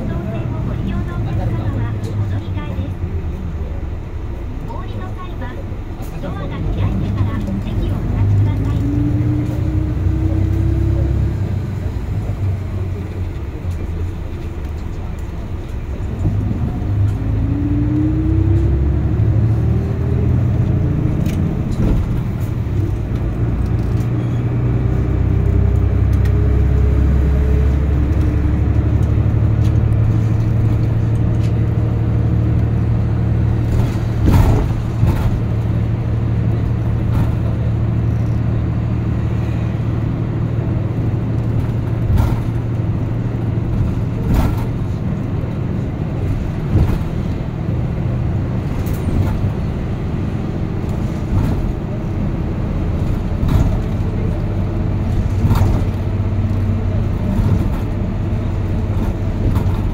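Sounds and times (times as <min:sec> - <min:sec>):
bus engine rumble and whine: 0:00.0 - 0:59.9.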